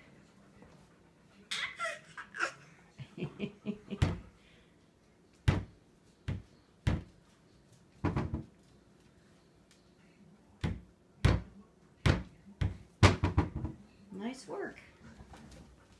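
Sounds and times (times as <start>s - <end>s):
cabinet door knocking against frame: 5.5s - 5.7s, 8.0s - 8.5s, 10.6s - 11.5s, 12.1s - 13.8s.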